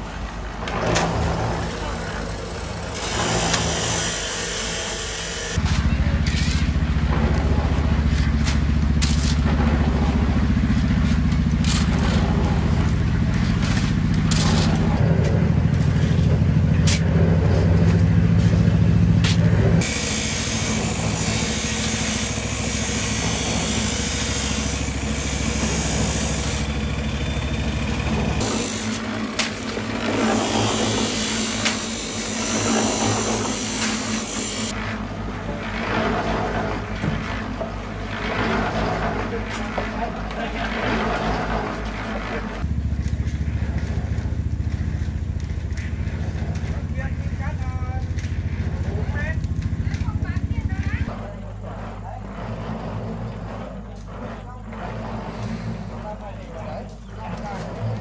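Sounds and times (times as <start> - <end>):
knocks and scrapes: 0.0 - 4.7, 5.6 - 26.3, 28.3 - 58.0
concrete mixer motor humming: 0.0 - 58.0.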